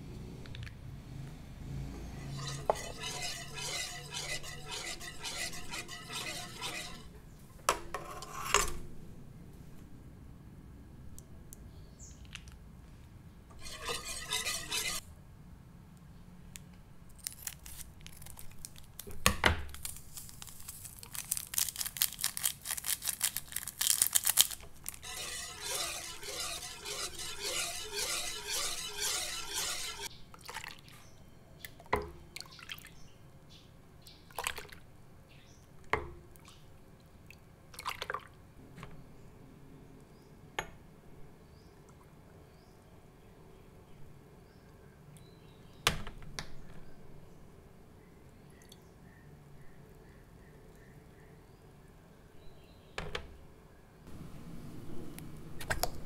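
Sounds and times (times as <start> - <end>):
liquid sloshing: 2.2 - 7.1, 13.6 - 15.0, 22.6 - 30.8
whisk clicking against metal pot: 2.2 - 7.1, 13.6 - 15.0, 24.9 - 30.1.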